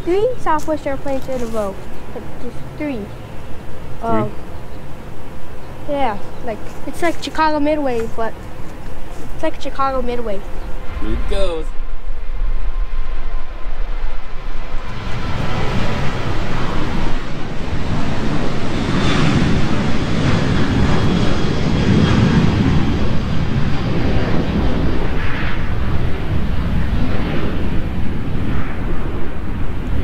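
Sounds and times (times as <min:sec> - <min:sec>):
jet engines roaring: 0:00.0 - 0:30.0.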